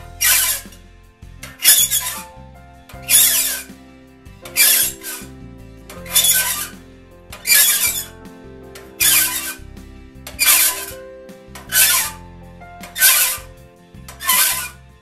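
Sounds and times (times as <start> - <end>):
hand file rasping on saw tooth: 14.1 - 14.8.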